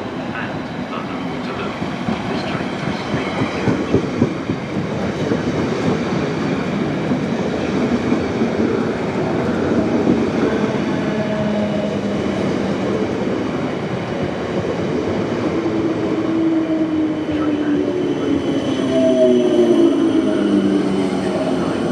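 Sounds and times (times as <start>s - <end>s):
train wheels rumbling on rail: 0.0s - 21.9s.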